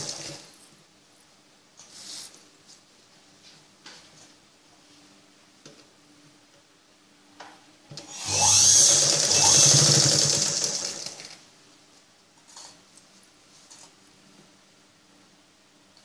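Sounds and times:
electric sewing machine running: 0:00.0 - 0:00.5, 0:08.0 - 0:11.4.

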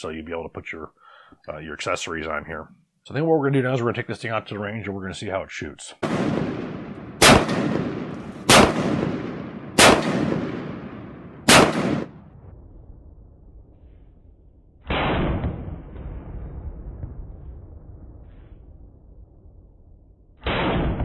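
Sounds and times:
rifle shots echoing: 0:06.0 - 0:12.3, 0:14.9 - 0:16.0, 0:20.4 - 0:21.0.

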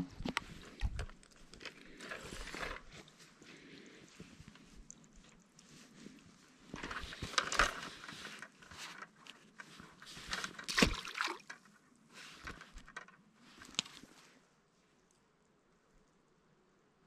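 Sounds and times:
handling knocks and rustles: 0:00.0 - 0:14.3
water splashing and sloshing: 0:09.9 - 0:11.8.

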